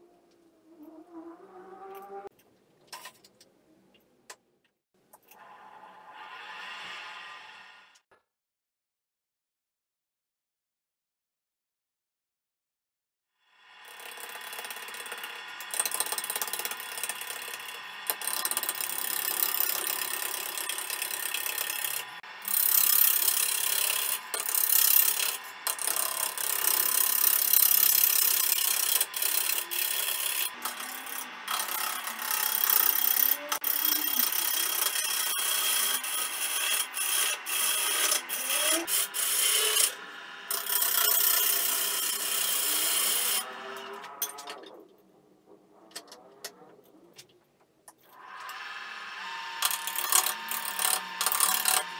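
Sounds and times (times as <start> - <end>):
lathe humming: 13.9 - 43.9, 48.5 - 51.9.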